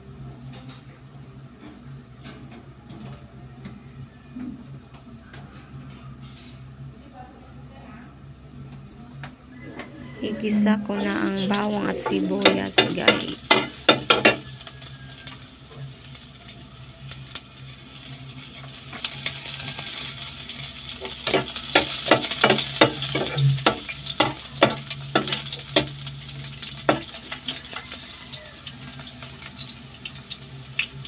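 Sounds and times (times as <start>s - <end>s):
onion sizzling in oil: 10.4s - 31.0s
spatula scraping a pan: 11.0s - 14.8s, 21.0s - 27.9s.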